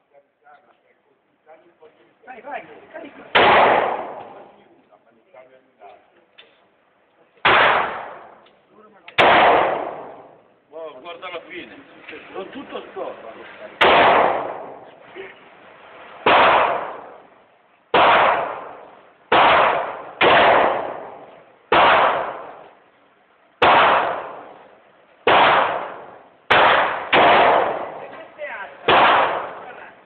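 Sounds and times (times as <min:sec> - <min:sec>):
revolver shots echoing indoors: 0:03.3 - 0:04.6, 0:07.4 - 0:08.5, 0:09.2 - 0:10.4, 0:13.8 - 0:15.0, 0:16.2 - 0:17.3, 0:17.9 - 0:22.8, 0:23.6 - 0:28.1, 0:28.8 - 0:29.8.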